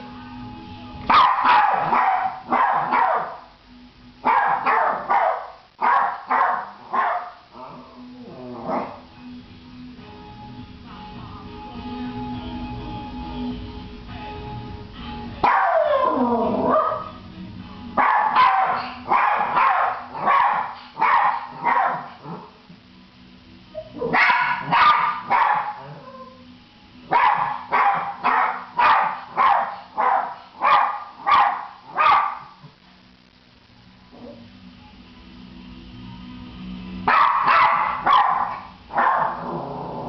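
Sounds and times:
dog barking: 1.1s - 3.4s, 4.2s - 7.4s, 15.4s - 16.1s, 16.7s - 17.1s, 18.0s - 22.2s, 24.0s - 26.1s, 27.1s - 32.6s, 37.1s - 39.4s.

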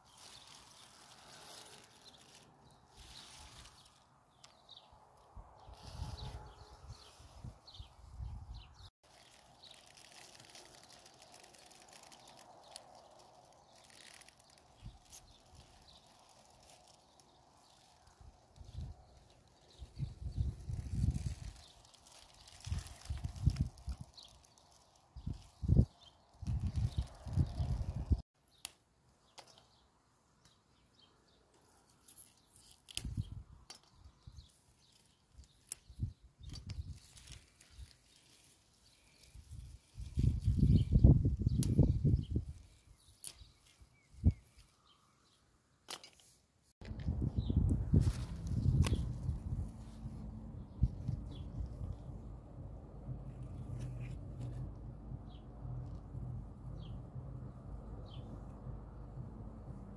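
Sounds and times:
rustling of plants: 0.0s - 28.2s, 31.1s - 57.0s
small birds chirping: 0.0s - 46.4s, 47.2s - 52.4s, 55.2s - 58.4s
pea pods snapping: 9.1s - 18.1s, 43.1s - 43.8s, 48.0s - 49.4s.

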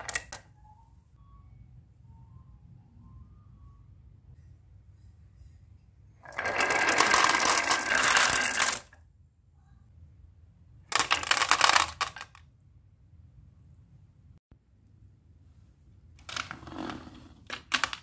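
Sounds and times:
glass marbles clattering down wooden run: 6.4s - 8.9s.

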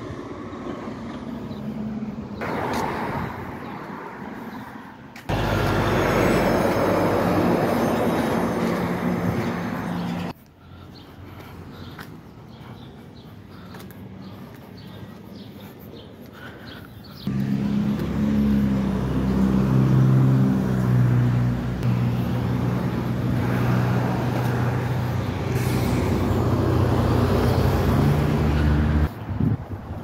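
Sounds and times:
vehicle engine revving: 5.3s - 9.8s, 17.2s - 29.1s
traffic hiss: 23.7s - 28.1s.

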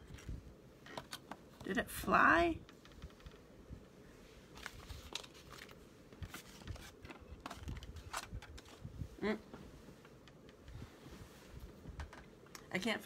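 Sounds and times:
paper shuffling on desk: 4.5s - 8.9s.

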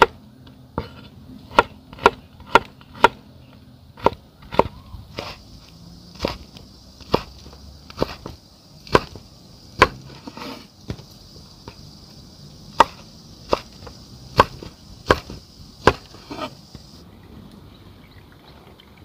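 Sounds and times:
cleaver chopping on wooden board: 0.8s - 3.2s, 4.0s - 5.4s, 6.2s - 11.8s, 12.7s - 16.9s.

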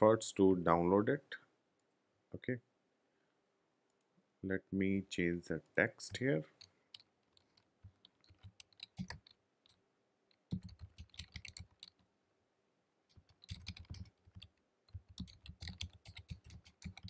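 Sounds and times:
typing on computer keyboard: 6.6s - 9.4s, 10.4s - 12.0s, 13.1s - 17.0s.

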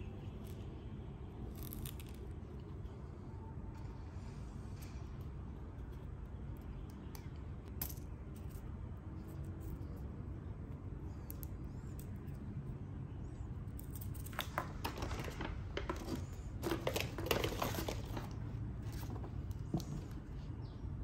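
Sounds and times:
low background hum: 0.0s - 21.0s
paper rustling: 14.3s - 20.2s.

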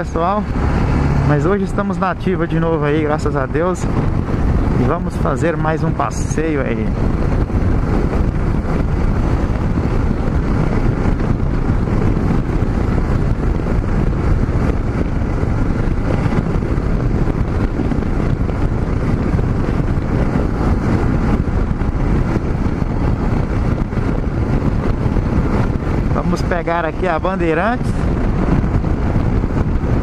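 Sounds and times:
motorcycle engine and tyre noise: 0.0s - 30.0s
wind rushing over microphone: 0.0s - 30.0s.

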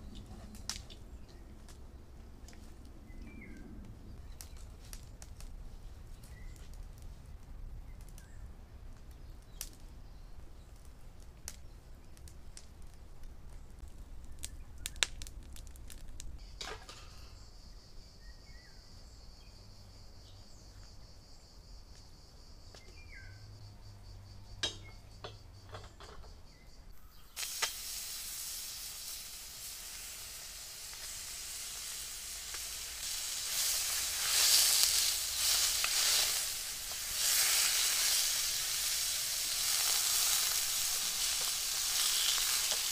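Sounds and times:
meat sizzling in wok: 27.0s - 42.9s.

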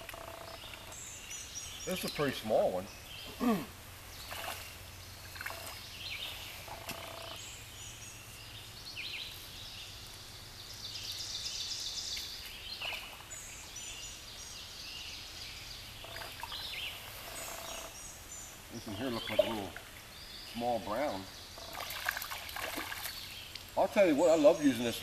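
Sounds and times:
birds calling: 0.0s - 25.0s.

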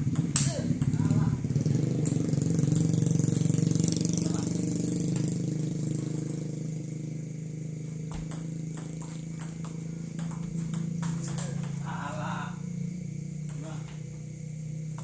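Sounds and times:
table tennis ball clicks: 0.2s - 0.9s, 2.0s - 3.0s.

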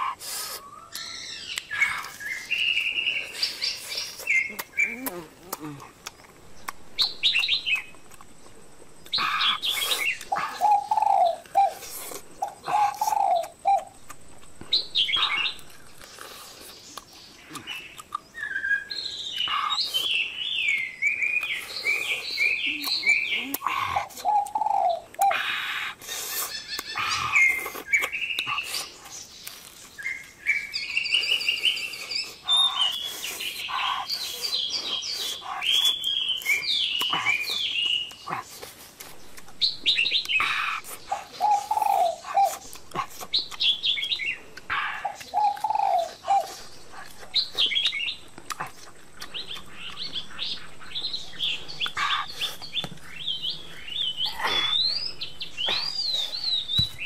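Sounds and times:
songbirds chirping: 0.0s - 57.0s
chewing clicks and crunches: 3.8s - 10.6s, 11.4s - 18.6s, 19.2s - 41.3s, 42.2s - 53.2s
bird cooing call: 9.1s - 14.0s, 22.0s - 25.7s, 39.6s - 42.7s, 43.6s - 46.7s.

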